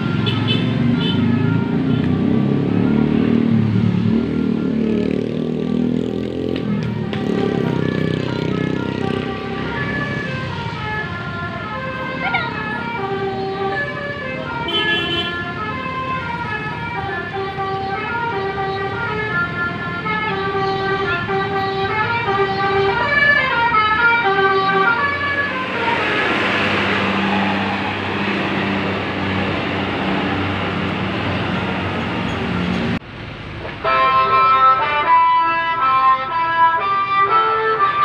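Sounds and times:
bus air horn playing a tune: 7.2s - 26.0s, 33.8s - 38.0s.

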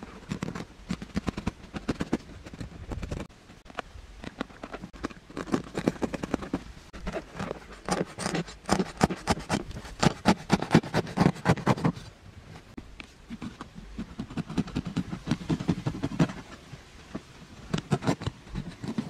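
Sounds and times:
knife scraping gourd skin: 4.2s - 12.0s, 17.2s - 19.0s.

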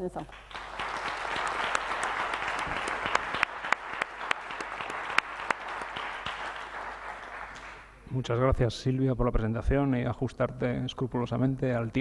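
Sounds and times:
audience applauding: 0.3s - 8.0s.

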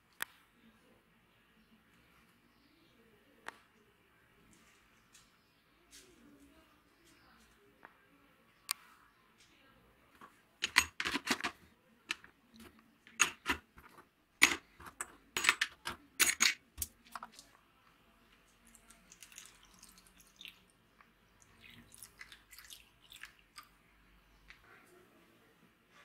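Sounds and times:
metal parts clattering into plastic tub: 10.6s - 12.3s, 13.1s - 17.3s
liquid pouring: 18.6s - 20.7s, 21.4s - 23.8s.

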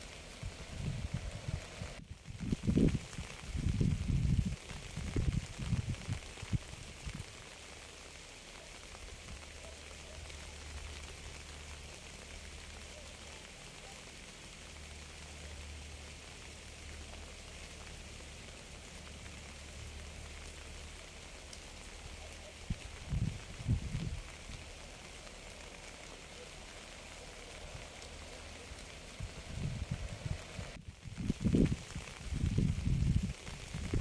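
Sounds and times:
rain falling: 0.0s - 34.0s.

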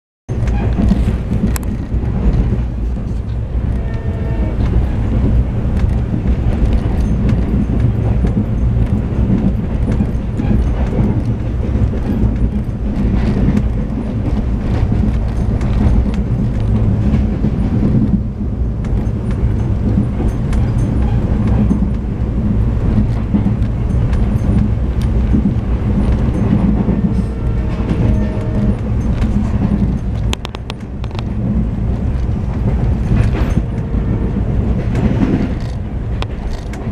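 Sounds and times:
rail joint clicks: 0.3s - 36.9s
train wheels rumbling on rails: 0.3s - 36.9s
locomotive horn: 3.6s - 4.9s, 26.8s - 28.9s, 33.5s - 34.9s.

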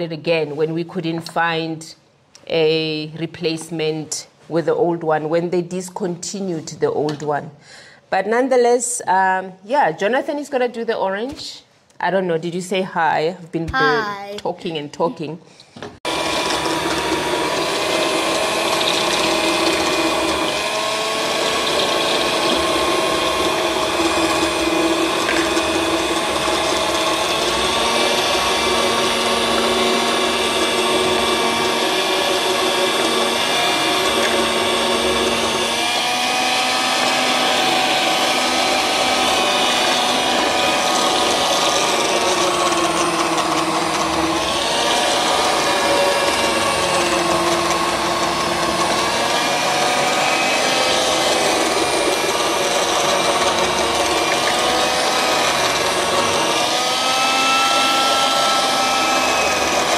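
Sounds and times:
juicer motors whirring: 16.0s - 59.9s.

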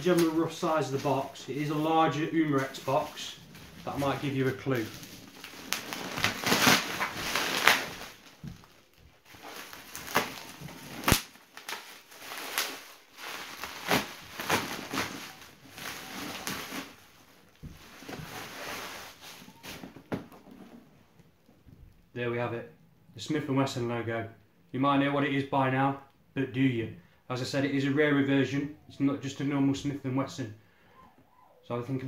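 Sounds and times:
bubble wrap snapping: 0.0s - 20.3s
bubble wrap crinkling and rustling: 0.0s - 22.0s.

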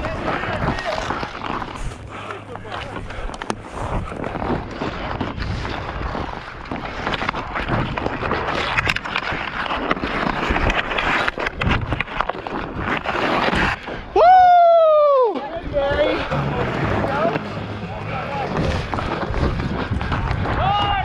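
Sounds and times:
skate blades scraping ice: 0.0s - 14.2s, 15.3s - 21.0s
wind rumbling on microphone: 0.0s - 21.0s
stick clicking on puck: 4.8s - 13.8s.

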